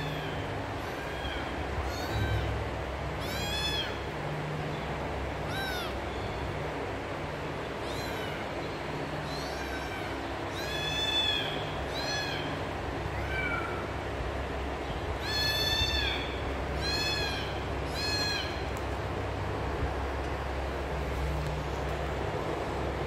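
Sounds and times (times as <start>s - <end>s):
kitten meowing: 0.0s - 4.1s, 5.5s - 6.1s, 7.8s - 8.5s, 9.2s - 13.9s, 15.2s - 18.7s
steady low hum: 0.0s - 23.0s.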